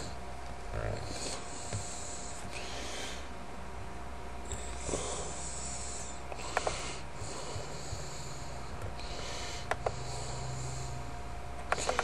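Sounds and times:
person breathing: 0.9 - 3.4, 4.5 - 11.2
small clicks: 11.6 - 12.0.

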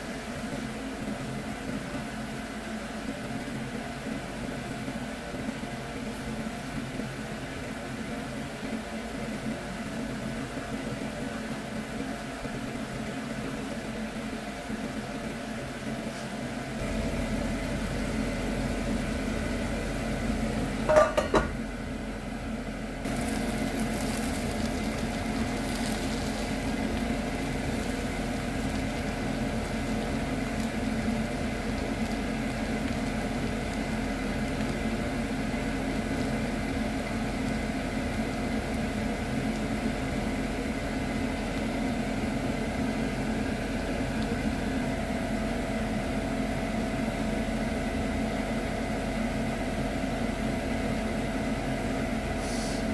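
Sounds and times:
steady mechanical hum: 0.0 - 52.9
food sizzling in a pan: 16.1 - 22.3, 23.1 - 44.8, 52.4 - 52.9
spatula knocking against pan: 20.9 - 21.6.

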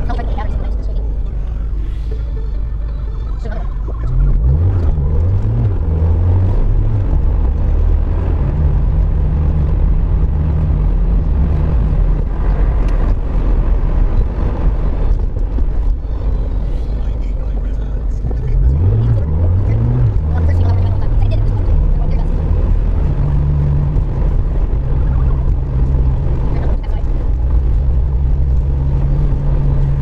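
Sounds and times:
car engine accelerating: 0.0 - 30.0
road noise on wet road: 0.0 - 30.0.

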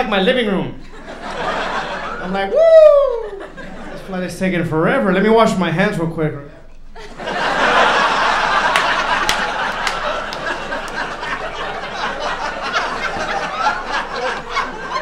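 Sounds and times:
audience laughing: 0.8 - 4.1, 7.0 - 15.0
scattered clapping: 8.5 - 11.7.

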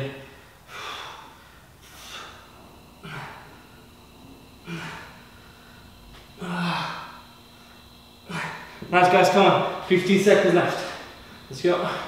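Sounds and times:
man exhaling forcefully: 0.3 - 3.7, 4.6 - 5.8.

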